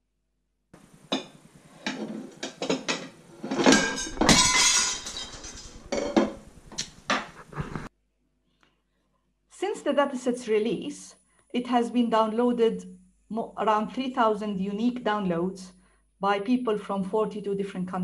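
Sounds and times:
plates and cutlery clattering: 1.1s - 6.5s.

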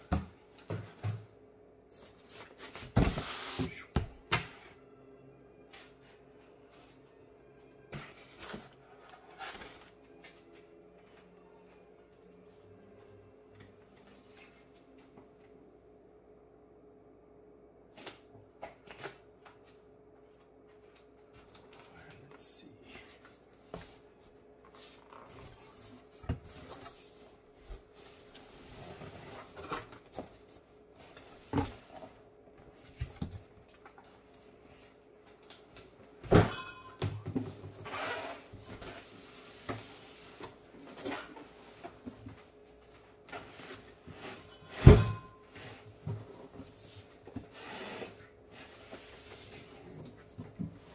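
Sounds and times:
cardboard rustling and scraping: 8.0s - 10.0s, 23.8s - 33.5s.

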